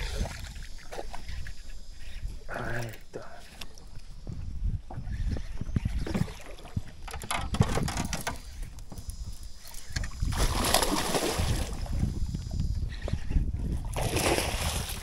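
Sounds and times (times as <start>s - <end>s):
fish splashing in water: 10.3s - 11.8s.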